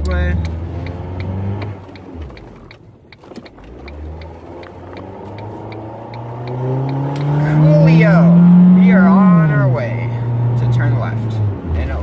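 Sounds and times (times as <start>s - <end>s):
turn signal clicking: 0.0s - 9.6s
car engine humming: 0.0s - 12.0s.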